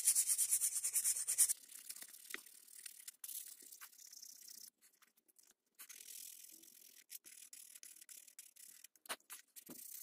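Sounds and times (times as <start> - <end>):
sandpaper rubbing on wood: 0.0 - 1.5.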